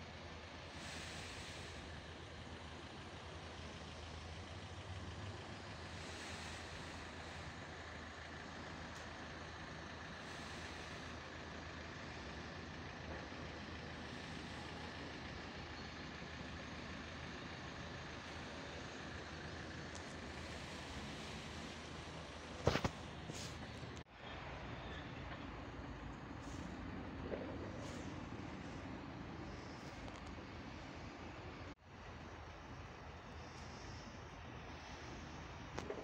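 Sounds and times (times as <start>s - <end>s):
constant hiss: 0.0s - 36.0s
low engine hum: 0.0s - 36.0s.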